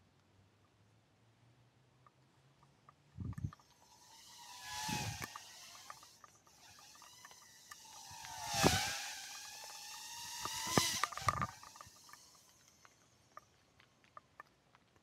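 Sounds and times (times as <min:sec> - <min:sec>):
drone motors whining: 0:03.2 - 0:13.5.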